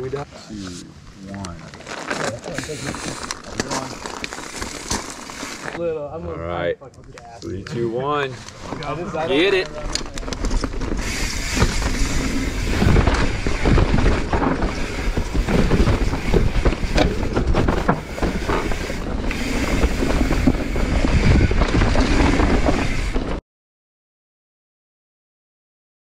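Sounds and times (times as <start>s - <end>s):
bike knocking and clattering: 9.4s - 23.4s
wind buffeting microphone: 10.5s - 23.3s.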